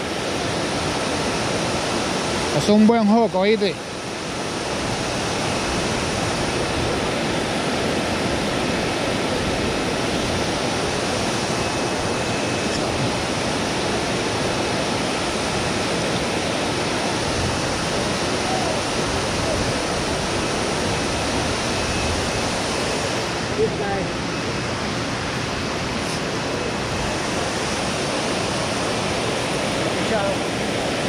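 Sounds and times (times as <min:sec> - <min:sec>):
creek water rushing: 0:00.0 - 0:31.0.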